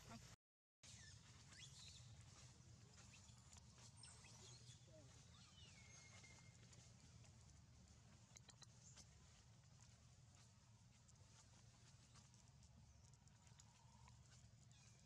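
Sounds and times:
faint high chirps and whistles: 0.8 - 6.9
steady low hum: 1.2 - 15.0.

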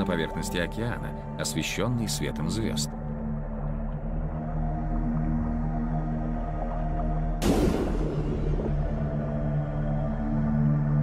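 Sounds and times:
eerie ambient music: 0.0 - 11.0.

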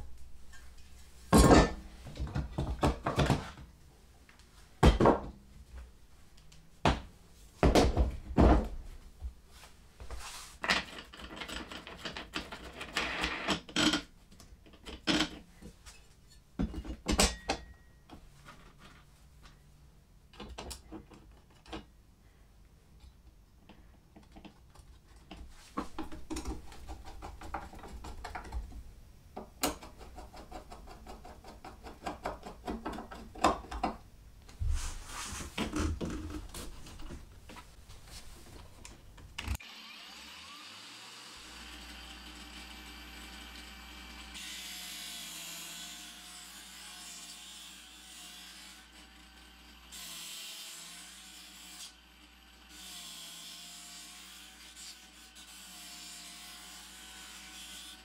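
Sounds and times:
disc sander running: 39.6 - 44.4.

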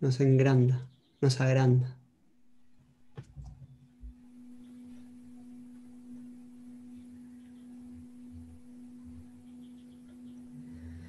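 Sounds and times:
steady pure tone: 2.2 - 11.0.

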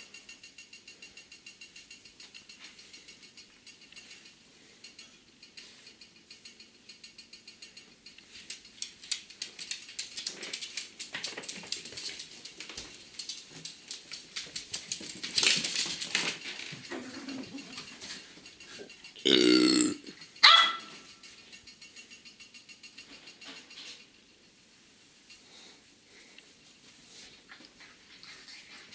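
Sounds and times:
dog barking: 20.4 - 21.0.

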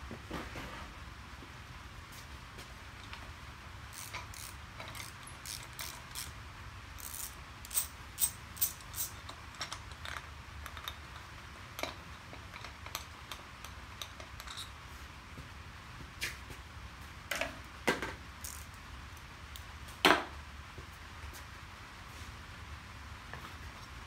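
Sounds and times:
metal parts clicking and clinking: 3.9 - 6.3, 7.0 - 14.8, 18.4 - 18.8.

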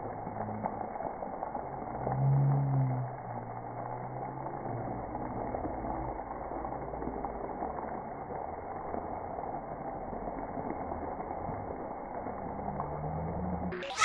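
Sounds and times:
faint drawn-out low tones: 0.0 - 14.0
water spray rushing: 12.2 - 14.0.

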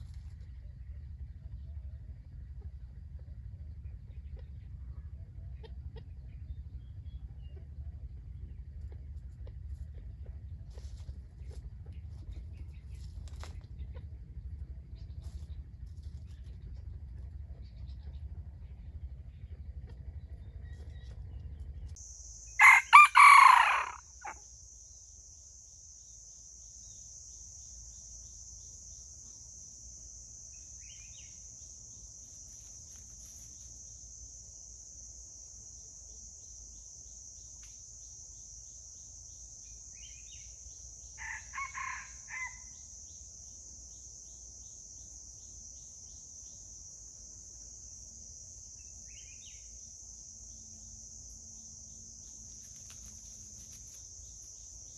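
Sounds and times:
high insect drone: 21.9 - 54.9
rooster crowing: 22.6 - 24.4, 41.2 - 42.8.

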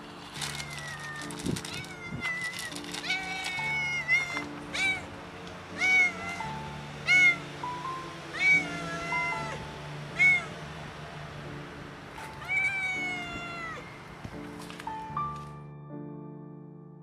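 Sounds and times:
soft background music: 0.0 - 17.0
cat meowing: 0.3 - 5.1, 5.7 - 7.4, 8.3 - 10.6, 12.3 - 13.9.

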